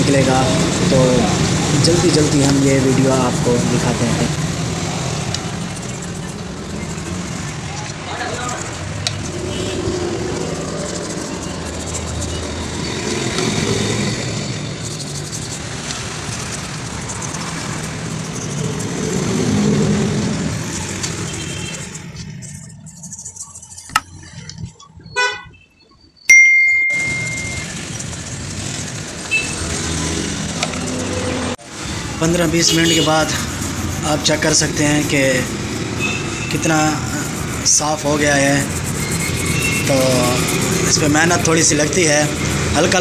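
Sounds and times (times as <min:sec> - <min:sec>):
stiff brush scrubbing metal: 0:08.5 - 0:24.1, 0:32.2 - 0:43.0
horn toot: 0:32.5 - 0:33.6.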